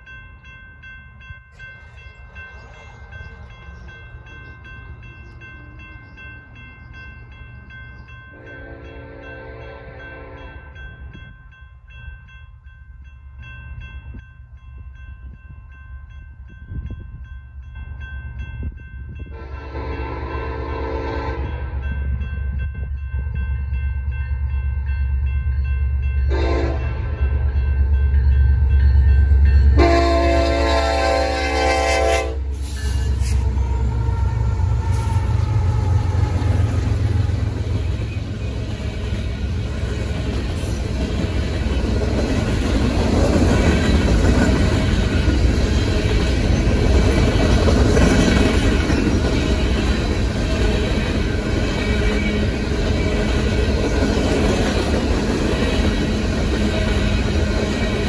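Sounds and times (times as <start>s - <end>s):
crossing bell ringing: 0.0s - 58.0s
train air horn blasts: 8.4s - 10.7s, 19.3s - 21.8s, 26.3s - 27.2s, 29.8s - 37.5s
diesel locomotive rumble: 18.6s - 58.0s
freight cars rolling past: 32.8s - 58.0s.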